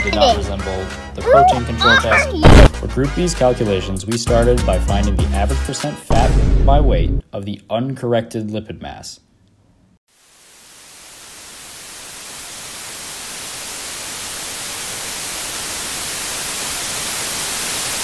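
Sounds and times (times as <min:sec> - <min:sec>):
static hiss: 0:10.1 - 0:18.0.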